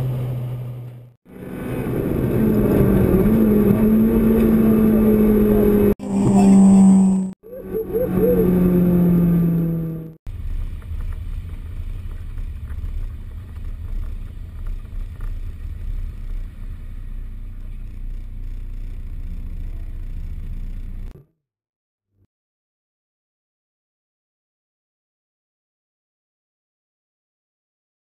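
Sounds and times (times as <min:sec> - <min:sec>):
car engine at steady revs: 0:00.0 - 0:21.2
low fluttering car rumble: 0:00.0 - 0:21.2.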